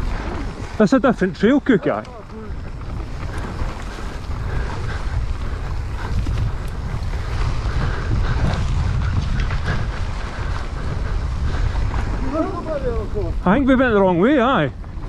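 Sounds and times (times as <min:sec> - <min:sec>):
bike tyres rolling over trail: 0:00.0 - 0:15.0
wind buffeting microphone: 0:00.0 - 0:15.0.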